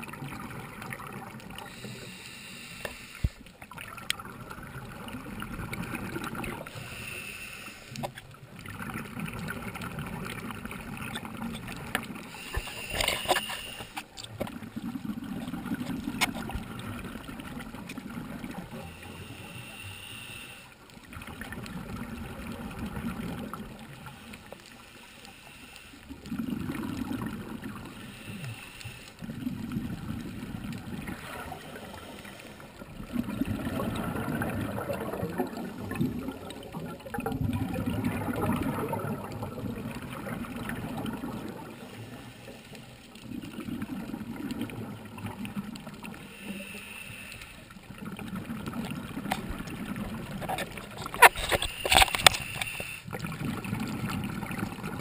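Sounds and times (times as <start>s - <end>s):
regulator breathing hiss: 1.6s - 3.5s, 6.7s - 8.0s, 12.3s - 14.1s, 18.8s - 20.8s, 24.0s - 26.1s, 27.9s - 29.2s, 46.2s - 47.7s, 52.4s - 53.1s
exhaust bubbles rumbling underwater: 3.6s - 6.8s, 8.3s - 12.7s, 14.4s - 19.3s, 20.8s - 24.2s, 26.1s - 28.4s, 29.2s - 42.2s, 42.8s - 46.4s, 47.7s - 51.2s, 53.1s - 55.0s.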